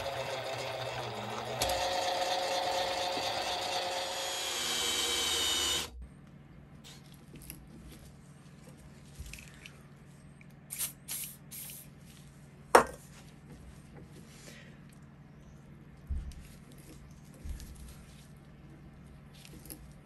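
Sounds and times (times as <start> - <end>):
lathe whining: 0.0 - 5.9
low steady hum: 0.0 - 20.0.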